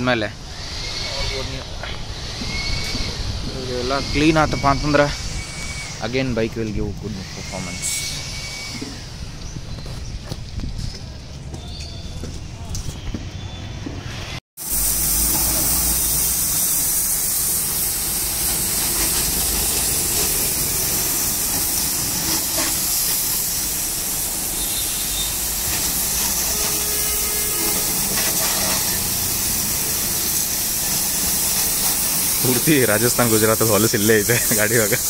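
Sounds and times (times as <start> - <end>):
pressure washer spraying water: 14.6 - 35.0.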